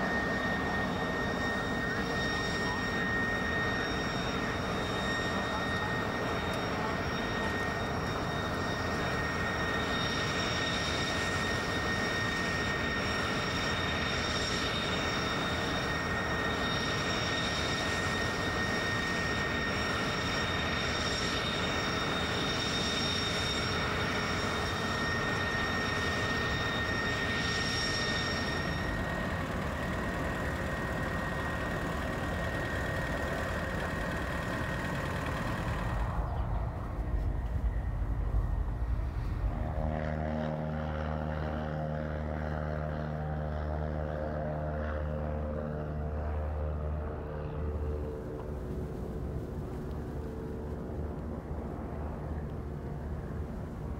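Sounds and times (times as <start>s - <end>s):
jet engine rush: 0.0s - 43.3s
high jet engine whine: 0.0s - 53.9s.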